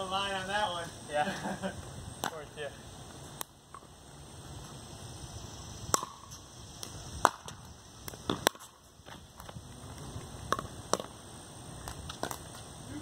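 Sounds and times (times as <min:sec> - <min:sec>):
ball bouncing on concrete: 0:02.2 - 0:02.5, 0:05.9 - 0:11.2, 0:11.8 - 0:12.6.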